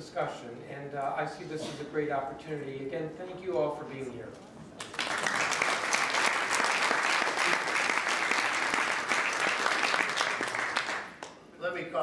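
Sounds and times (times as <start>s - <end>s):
audience applauding: 4.8s - 11.4s.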